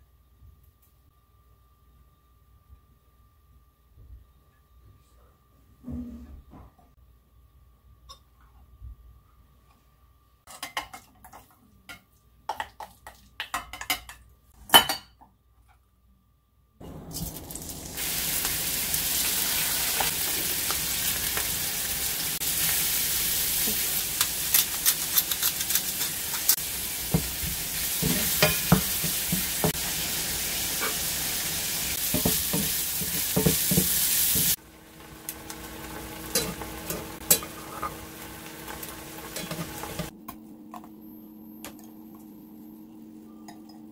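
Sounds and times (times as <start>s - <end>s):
shrimp sizzling in hot oil: 17.2s - 40.1s.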